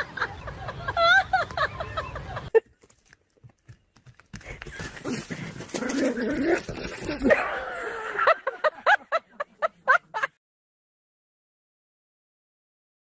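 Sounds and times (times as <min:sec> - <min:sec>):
steady outdoor noise: 0:00.0 - 0:10.3.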